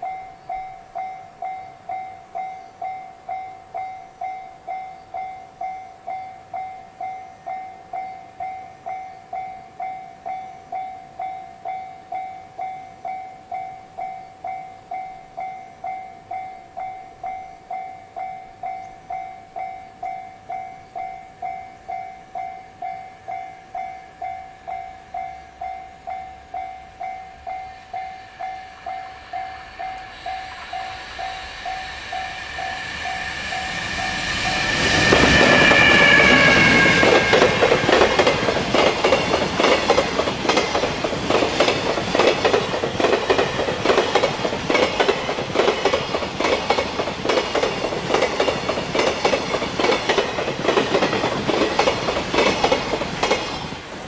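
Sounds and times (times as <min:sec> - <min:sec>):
level-crossing warning bell ringing: 0:00.0 - 0:53.5
freight train rushing past: 0:00.0 - 0:54.0
wagon wheels clickety-clack: 0:37.0 - 0:53.7.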